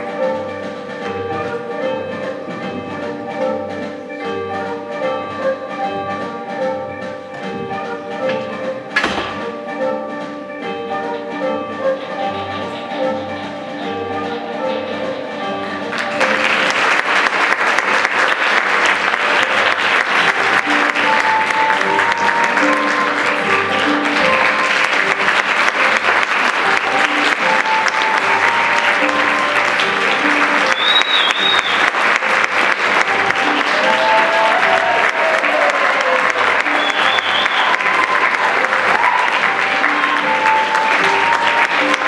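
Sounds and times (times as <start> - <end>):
music playing: 0.0 - 42.0
audience applauding: 15.8 - 42.0.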